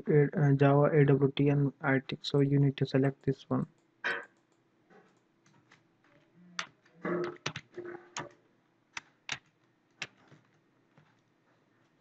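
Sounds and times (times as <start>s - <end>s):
typing on computer keyboard: 6.6s - 10.5s.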